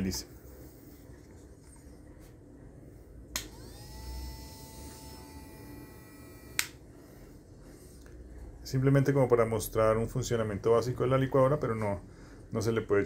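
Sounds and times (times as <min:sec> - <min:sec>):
small motor whining: 0:03.4 - 0:06.6.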